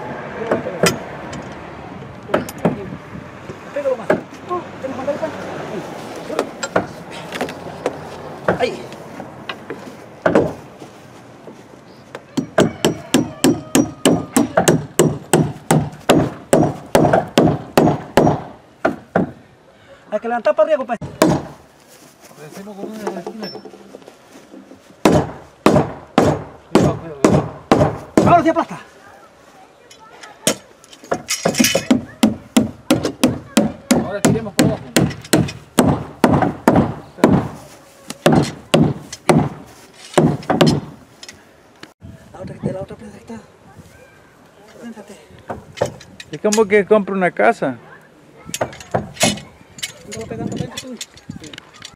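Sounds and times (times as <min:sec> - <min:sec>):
hammer striking wooden hull: 0:10.2 - 0:10.6, 0:12.4 - 0:19.4, 0:21.0 - 0:21.6, 0:25.0 - 0:28.4, 0:30.4 - 0:37.6, 0:38.2 - 0:39.6, 0:40.2 - 0:41.0, 0:48.6 - 0:49.5.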